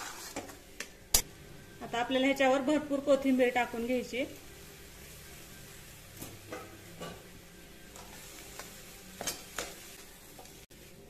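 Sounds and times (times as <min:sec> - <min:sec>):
metal spatula scraping pan: 0:00.0 - 0:00.6
faint sizzle in hot oil: 0:00.0 - 0:11.0.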